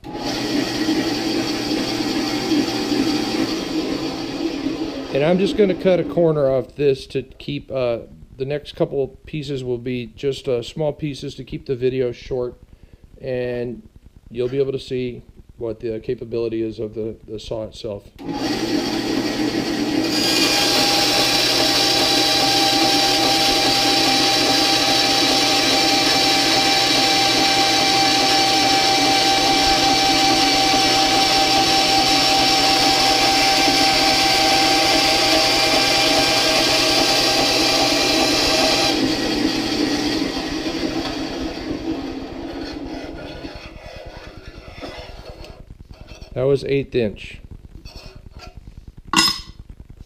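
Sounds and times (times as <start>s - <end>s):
bandsaw cutting metal: 18.2s - 45.5s.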